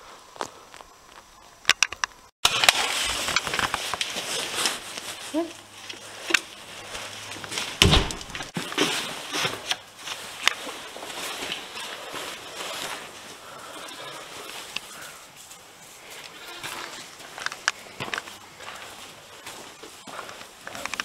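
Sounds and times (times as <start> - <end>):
clothing rustling on microphone: 2.5 - 21.0
footsteps crunching on snow: 2.5 - 21.0
heavy thump: 7.8 - 8.4.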